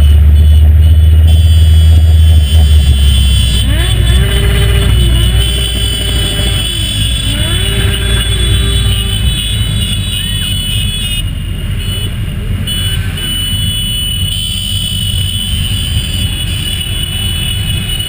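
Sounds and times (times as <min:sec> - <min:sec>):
motorcycle engines rumbling: 0:00.0 - 0:18.0.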